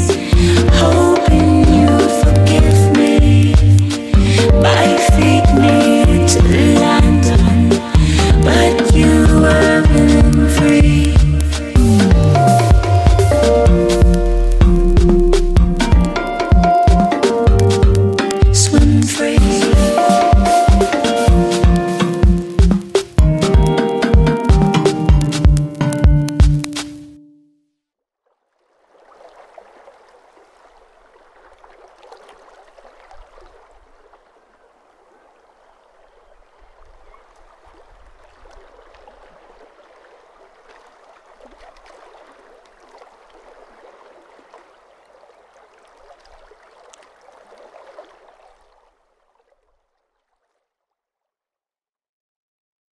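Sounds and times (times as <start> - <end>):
low rumble: 0.0 - 17.6
water lapping against rocks: 28.2 - 50.8.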